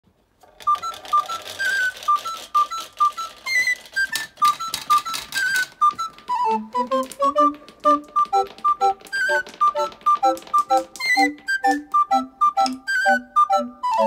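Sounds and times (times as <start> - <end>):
glass marbles clicking: 0.4 - 6.2, 7.0 - 12.0
plastic clothespins toppling: 0.4 - 13.2.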